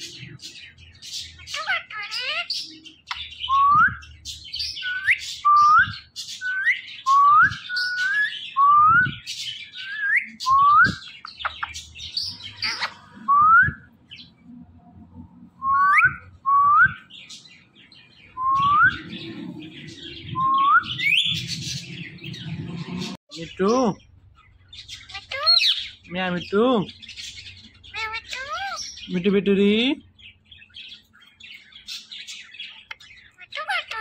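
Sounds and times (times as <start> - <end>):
parakeet whistled calls: 1.4 - 14.0, 18.3 - 21.9, 24.9 - 26.0, 31.8 - 34.0.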